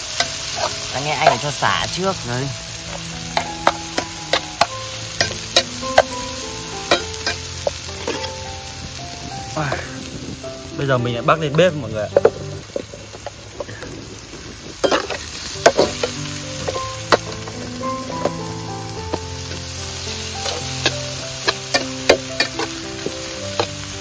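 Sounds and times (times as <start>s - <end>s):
metal spatula scraping wok: 0.0s - 8.8s, 14.8s - 24.0s
garlic sizzling in hot oil: 0.0s - 24.0s.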